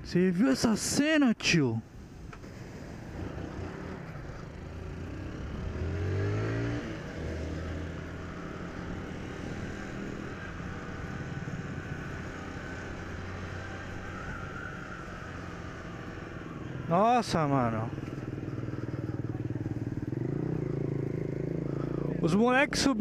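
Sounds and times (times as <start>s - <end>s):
motorcycle engine revving: 2.5s - 23.0s.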